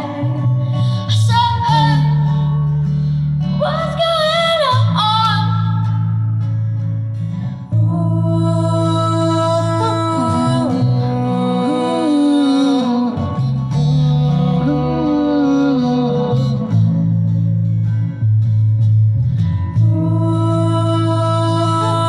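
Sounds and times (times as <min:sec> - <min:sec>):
person singing: 0:00.0 - 0:02.5, 0:07.7 - 0:17.5, 0:19.8 - 0:22.0
plucked upright bass: 0:00.0 - 0:22.0
strummed acoustic guitar: 0:00.0 - 0:22.0.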